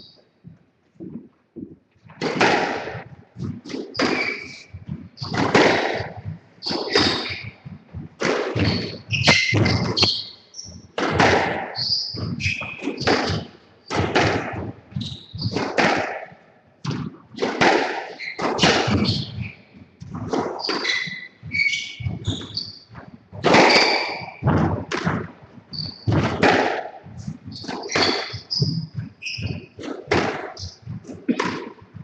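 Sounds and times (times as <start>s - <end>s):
shoes squeaking on wooden floor: 0.0s - 16.4s, 17.4s - 32.0s
squash ball cracking off rackets: 2.2s - 4.6s, 8.2s - 10.1s, 26.1s - 26.9s.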